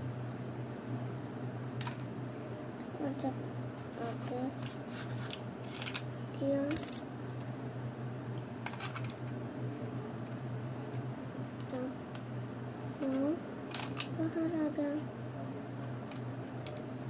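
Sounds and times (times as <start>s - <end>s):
steady low hum: 0.0s - 17.0s
coin clinking: 6.7s - 7.0s.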